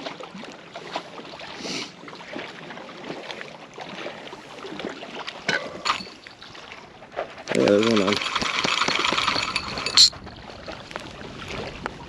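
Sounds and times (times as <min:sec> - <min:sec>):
lake water washing around pier: 0:00.0 - 0:12.0
wind: 0:00.0 - 0:12.0.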